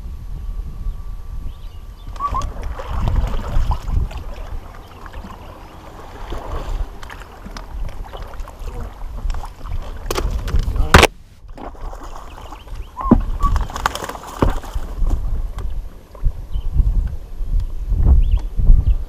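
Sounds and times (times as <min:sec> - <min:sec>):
wind rumbling on microphone: 0:00.0 - 0:19.0
water lapping at boat: 0:02.1 - 0:16.4.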